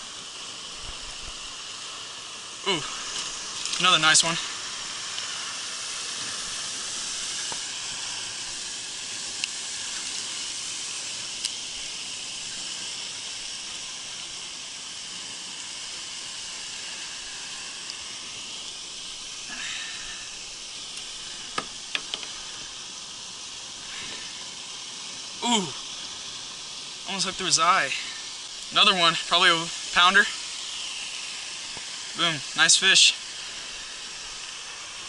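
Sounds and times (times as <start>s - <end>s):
steady hiss: 0.0s - 35.0s.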